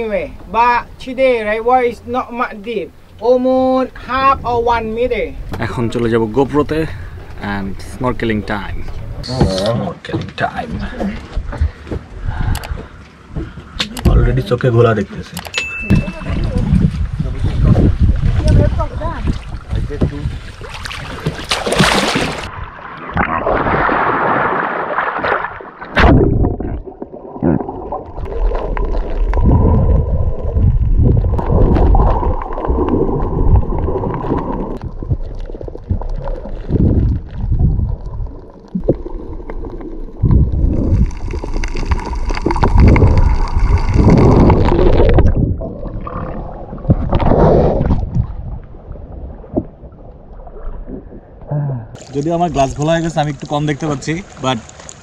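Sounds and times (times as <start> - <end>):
sea water sloshing and gurgling: 15.2 - 55.0.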